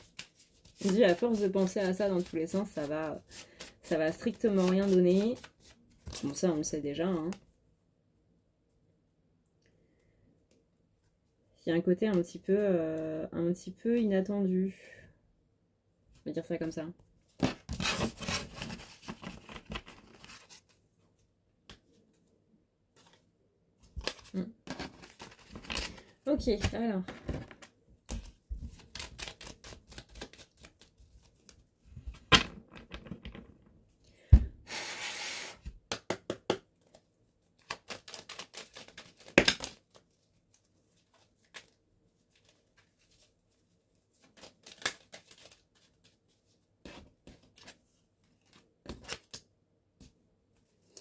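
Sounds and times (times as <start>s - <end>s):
playing cards clicking and tapping: 35.8s - 37.0s, 37.6s - 39.8s.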